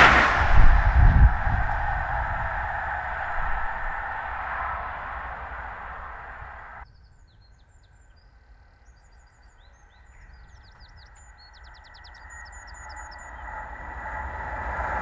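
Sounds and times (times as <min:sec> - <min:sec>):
approaching train rail noise: 0:00.0 - 0:06.8, 0:10.9 - 0:15.0
loud rushing noise: 0:00.0 - 0:06.8, 0:13.3 - 0:15.0
low rumble: 0:00.0 - 0:06.8, 0:12.1 - 0:15.0
small birds chirping: 0:06.8 - 0:13.6.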